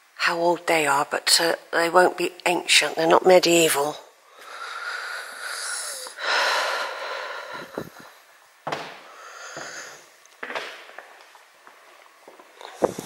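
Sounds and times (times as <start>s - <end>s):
person breathing heavily: 4.3s - 10.2s.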